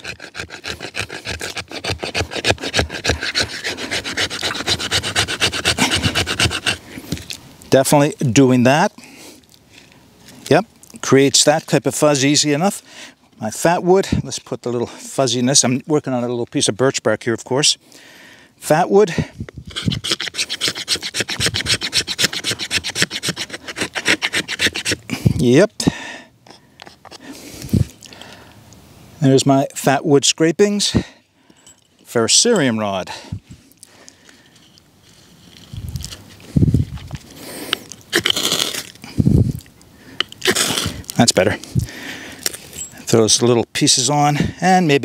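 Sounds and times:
knife scraping wooden stick: 0.0 - 7.4, 19.5 - 25.4, 26.5 - 28.0, 34.4 - 41.4.

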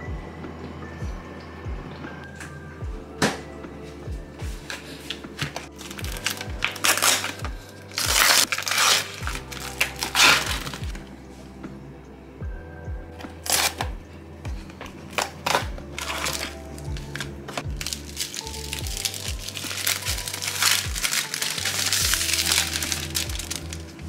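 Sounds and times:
music with steady beat: 0.0 - 24.0
food packaging crinkling: 4.7 - 11.0, 13.4 - 13.9, 15.1 - 24.0.

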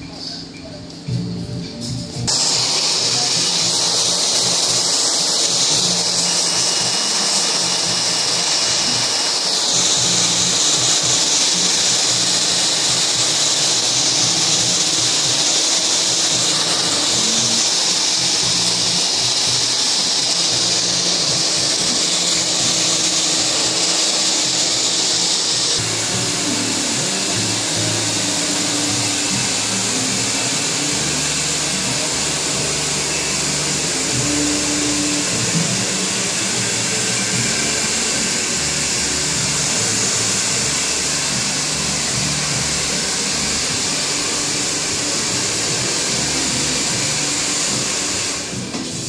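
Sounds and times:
hair dryer blowing: 2.2 - 49.0.

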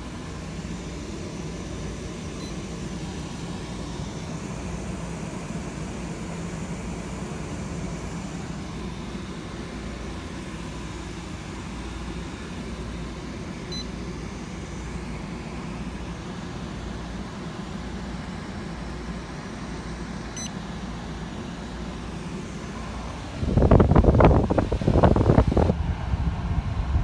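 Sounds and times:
low machinery hum: 0.0 - 27.0
high beep: 13.7 - 13.9.

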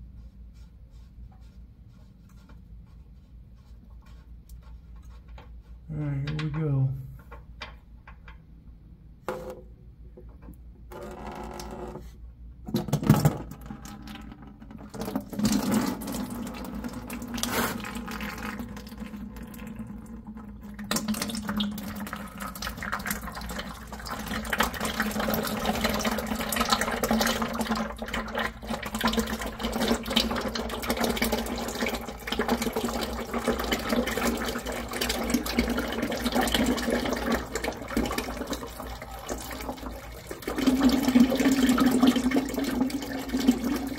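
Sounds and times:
oil pouring into plastic bucket: 12.8 - 43.9.

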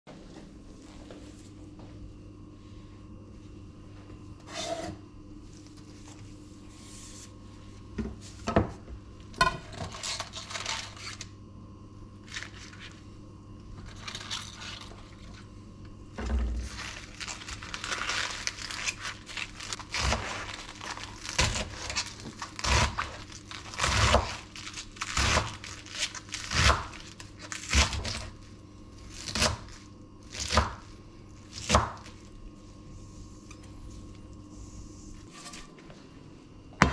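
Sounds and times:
spinach leaves rustling: 16.7 - 21.4
knife chopping onto wood: 31.6 - 32.0.

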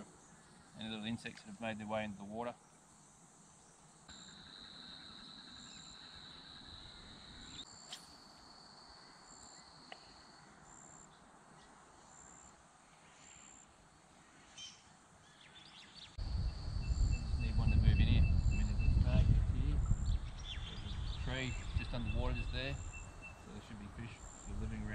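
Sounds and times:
insect trill: 0.2 - 11.2, 16.2 - 24.9
high insect chirps: 2.6 - 11.3, 12.0 - 24.9.

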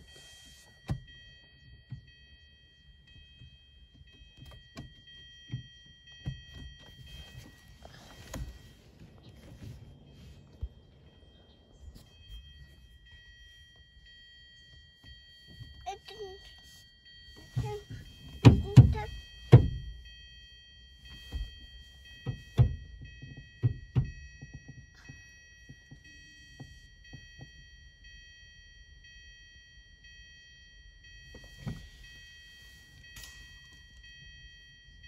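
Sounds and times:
dull thunks and knocks: 18.3 - 19.9.

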